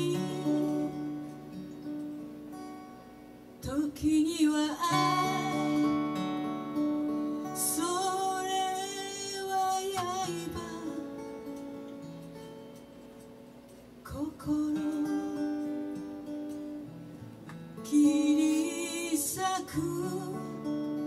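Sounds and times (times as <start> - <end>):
woman singing with vibrato: 0.0 - 1.1, 3.6 - 6.3, 7.4 - 11.3, 14.1 - 15.4, 17.8 - 20.7
acoustic guitar: 0.0 - 21.0.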